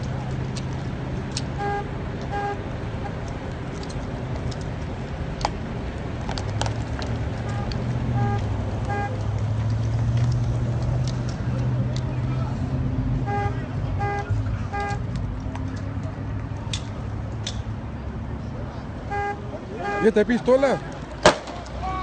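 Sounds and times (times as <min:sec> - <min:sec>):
vehicle engine idling: 0:00.0 - 0:22.0
short horn beeps: 0:01.6 - 0:02.6, 0:07.4 - 0:09.2, 0:13.2 - 0:15.1, 0:19.1 - 0:20.9.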